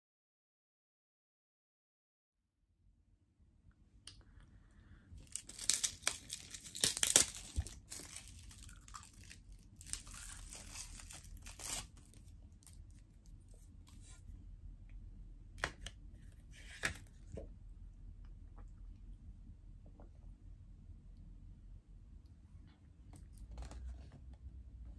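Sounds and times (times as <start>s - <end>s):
plastic packaging crinkling: 5.2s - 13.0s
plastic tearing: 5.2s - 13.0s.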